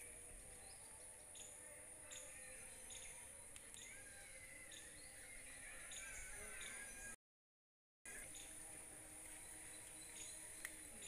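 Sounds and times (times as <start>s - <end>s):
faint bird chirps: 0.0s - 7.2s.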